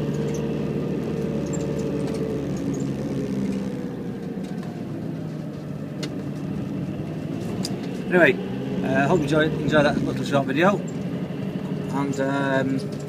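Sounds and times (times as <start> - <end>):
road noise: 0.0 - 13.0
van engine hum: 0.0 - 13.0.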